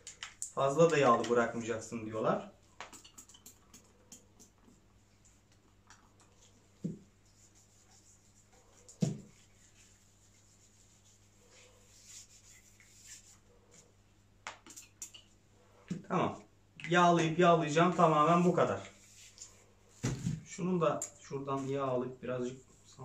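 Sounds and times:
faint rubbing: 0:06.4 - 0:14.0.

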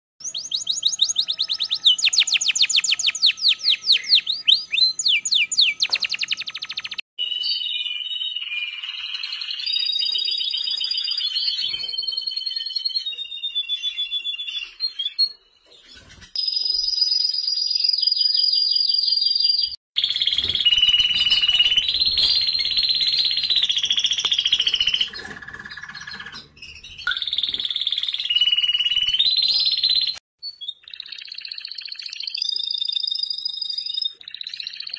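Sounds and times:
canaries singing: 0:00.2 - 0:34.9.

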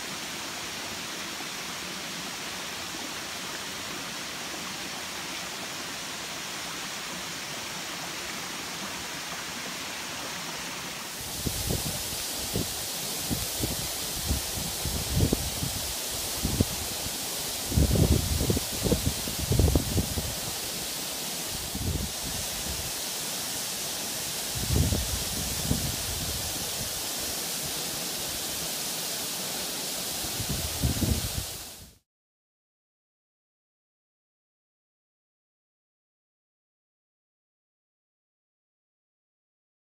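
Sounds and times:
waterfall rushing: 0:00.0 - 0:32.0
wind buffeting microphone: 0:11.3 - 0:15.8, 0:17.7 - 0:20.4, 0:24.5 - 0:26.9, 0:30.4 - 0:31.6.

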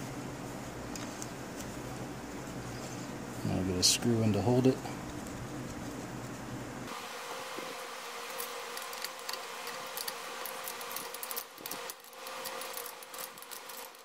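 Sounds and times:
metallic clicks and scrapes of screw: 0:08.3 - 0:14.0.

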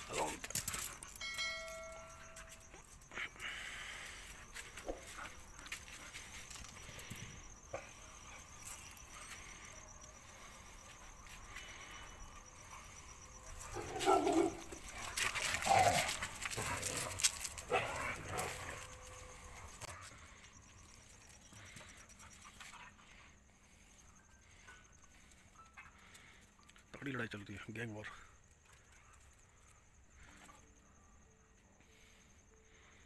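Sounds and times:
dogs barking and yelping: 0:00.0 - 0:03.6, 0:12.4 - 0:26.2.

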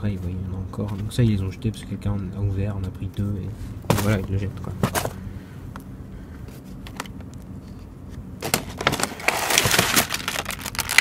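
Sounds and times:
low steady hum: 0:00.0 - 0:11.0
plastic packaging rustling: 0:08.4 - 0:11.0.

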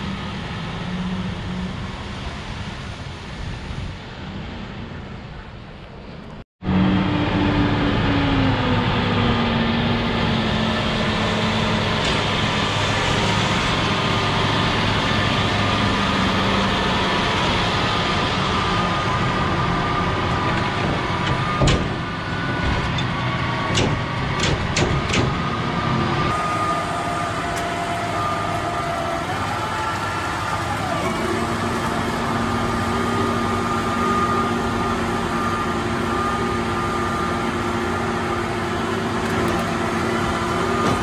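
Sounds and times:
large engine running: 0:00.0 - 0:41.0
sharp knocks and clicks: 0:23.7 - 0:25.4.

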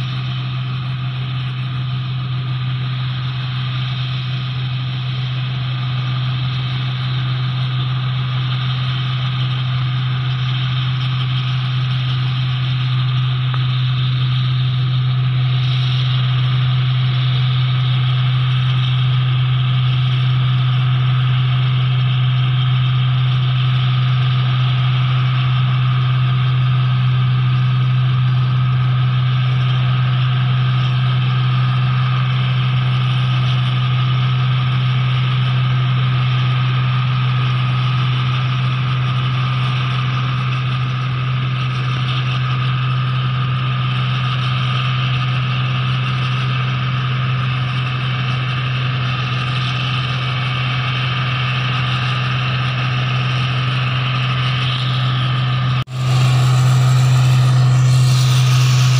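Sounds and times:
low engine hum: 0:00.0 - 0:58.9
machinery hiss: 0:55.9 - 0:58.9.

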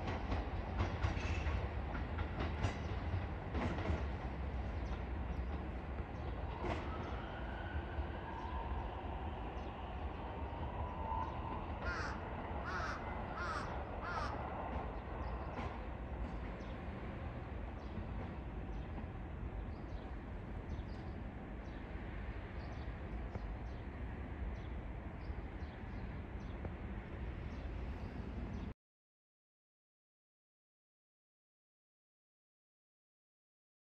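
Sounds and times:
train rumbling: 0:00.0 - 0:28.7
crow cawing: 0:11.8 - 0:14.5.

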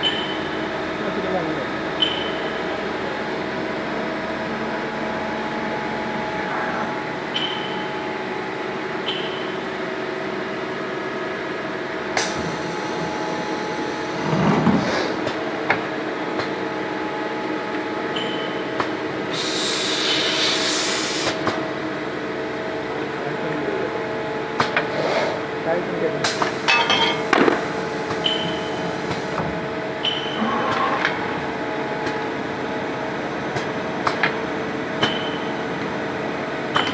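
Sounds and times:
pneumatic hiss: 0:19.3 - 0:21.4.

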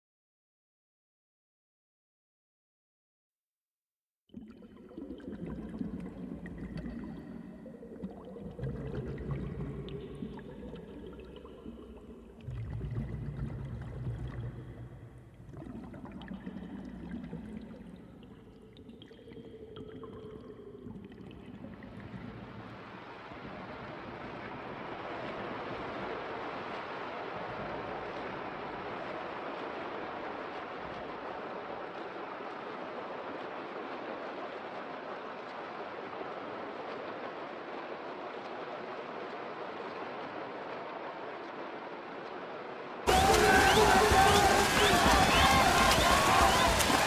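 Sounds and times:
splashing and bubbles hiss: 0:04.3 - 0:34.5, 0:43.1 - 0:47.0
muffled underwater churning: 0:04.3 - 0:41.9, 0:43.1 - 0:47.0.

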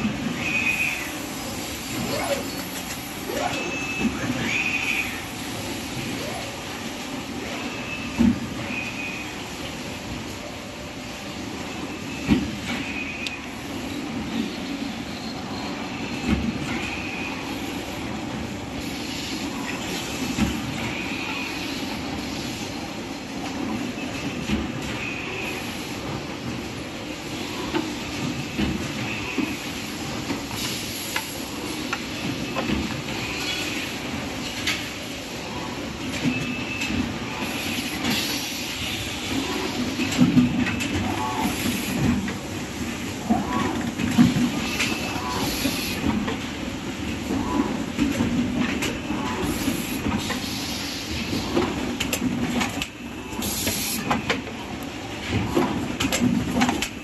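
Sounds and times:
machine clatter with clicks: 0:27.7 - 0:35.0, 0:36.0 - 0:38.5, 0:39.2 - 0:42.5, 0:43.3 - 0:50.5, 0:51.1 - 0:57.0
compressed air hiss: 0:49.5 - 0:51.1.

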